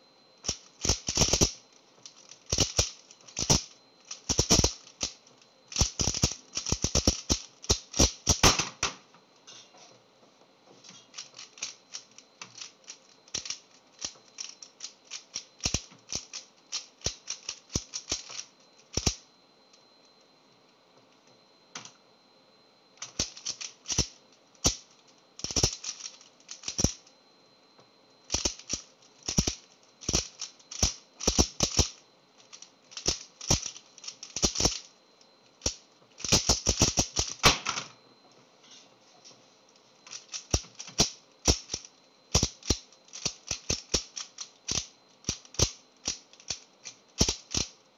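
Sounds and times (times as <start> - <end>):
puzzle cube plastic clicking: 0.5 - 8.4, 11.2 - 19.2, 23.1 - 27.0, 28.3 - 34.9, 35.6 - 37.4, 40.1 - 47.7.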